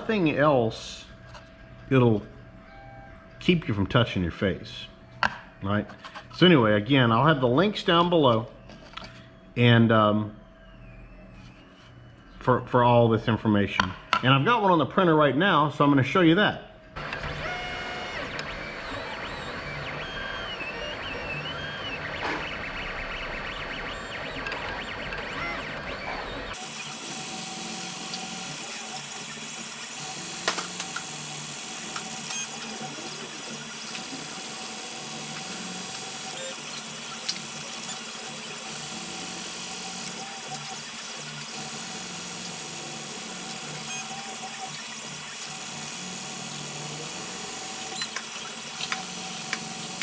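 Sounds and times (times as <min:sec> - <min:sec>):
stepper motors whining: 0:17.0 - 0:50.0.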